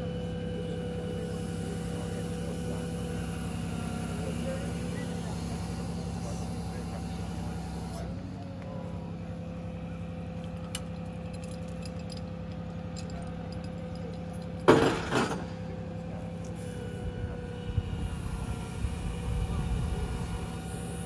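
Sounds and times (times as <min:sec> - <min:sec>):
truck engine idling: 0:00.0 - 0:21.0
loud clatter: 0:14.6 - 0:15.6.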